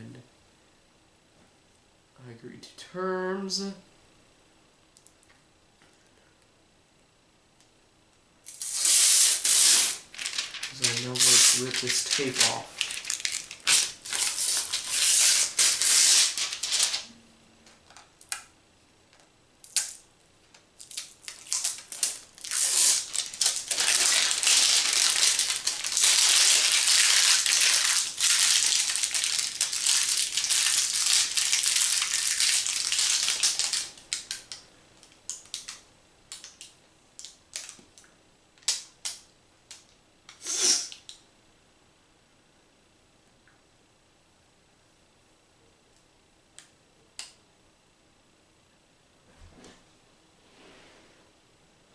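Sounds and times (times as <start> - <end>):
plastic film crinkling: 8.5 - 17.1, 20.8 - 34.6.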